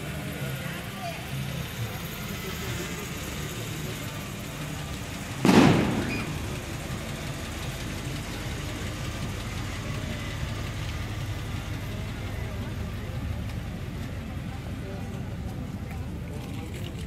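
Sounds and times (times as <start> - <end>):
truck engine running: 0.0 - 17.0
loud bang: 5.4 - 7.0.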